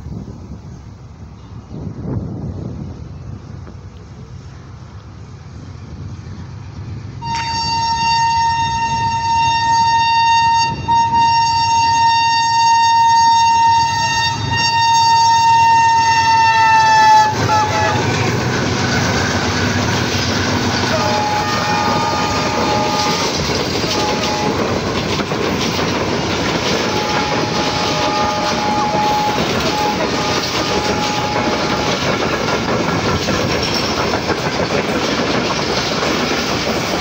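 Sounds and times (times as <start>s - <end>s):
train coaches rumbling past: 0.0s - 37.0s
locomotive horn blast: 7.2s - 25.2s, 26.1s - 32.2s.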